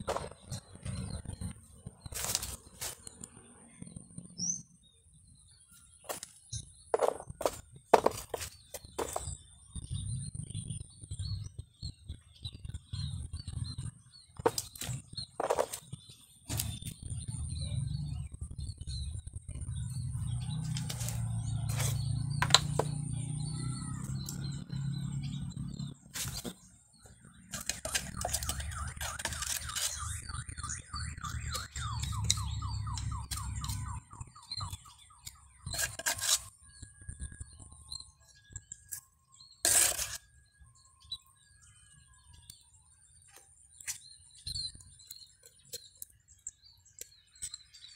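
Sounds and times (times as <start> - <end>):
faint bird chirps: 0.0 - 47.9
hands rubbing roots in sand: 2.1 - 3.0
trowel scraping wet mortar: 7.0 - 9.4, 14.4 - 15.9, 20.6 - 23.0, 26.2 - 26.6, 27.4 - 34.0, 34.6 - 36.7, 38.9 - 40.4.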